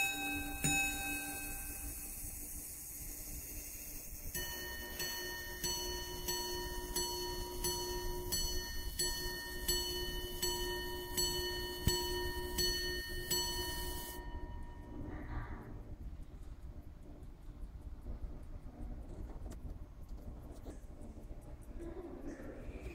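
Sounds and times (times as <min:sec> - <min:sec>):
pocket watch gongs chiming: 0:00.0 - 0:15.3.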